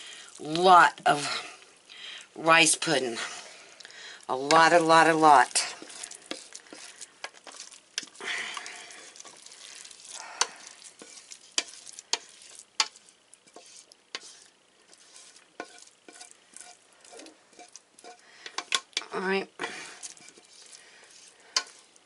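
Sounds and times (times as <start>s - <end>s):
soft squelching of rice: 3.1s - 22.0s
spoon scraping pudding from pot: 4.5s - 19.1s, 19.9s - 22.0s.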